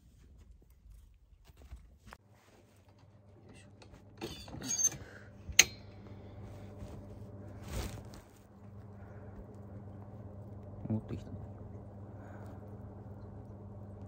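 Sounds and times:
low steady hum: 0.0 - 14.0
short rustle: 6.4 - 8.5.

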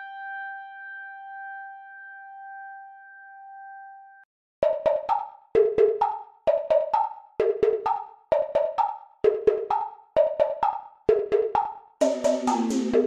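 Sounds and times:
percussive notes in groups: 4.6 - 13.0.

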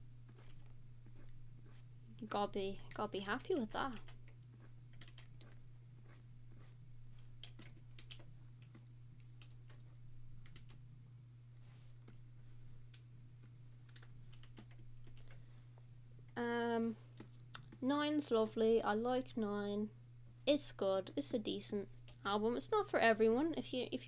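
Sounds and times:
low electrical hum: 0.0 - 24.0
keyboard keys clicking: 2.9 - 5.6, 7.4 - 10.8, 13.8 - 15.4.

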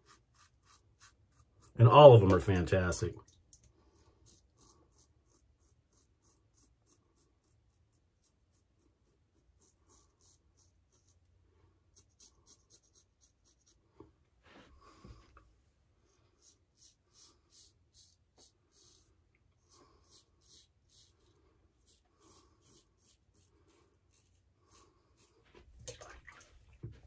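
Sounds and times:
razor scraping stubble: 0.0 - 2.4, 16.3 - 25.4.

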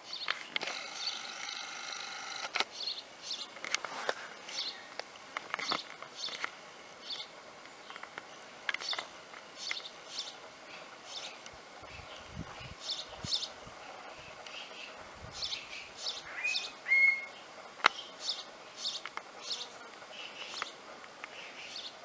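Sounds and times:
baby beaver whining: 15.4 - 17.4
short high squeaky calls: 16.2 - 17.4.

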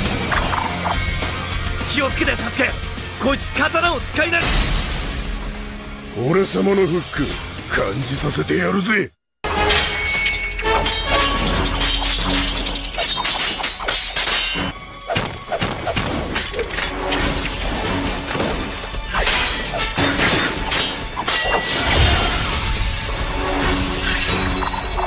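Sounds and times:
sword blades clashing: 9.7 - 17.1, 18.4 - 22.4.

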